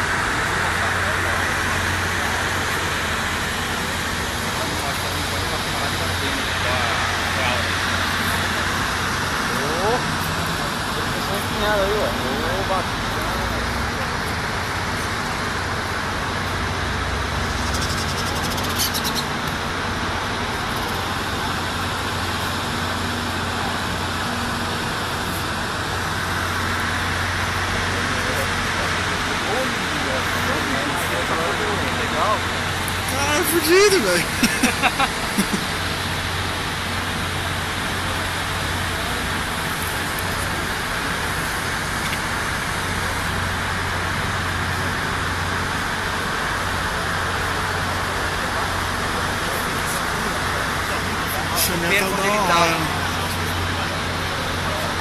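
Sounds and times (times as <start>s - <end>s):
road traffic hum: 0.0s - 55.0s
even hiss: 32.1s - 35.8s.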